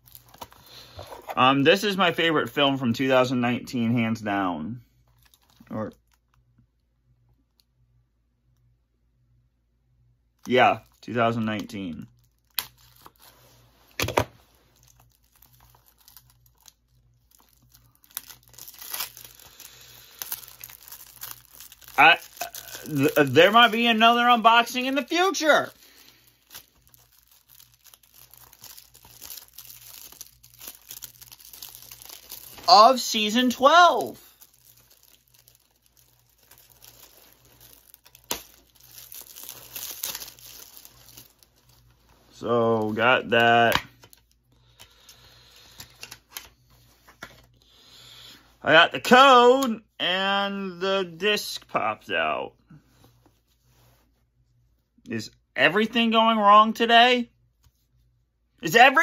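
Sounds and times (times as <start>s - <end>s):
packaging crinkling and tearing: 0.0s - 1.4s, 5.1s - 6.4s, 10.4s - 47.6s.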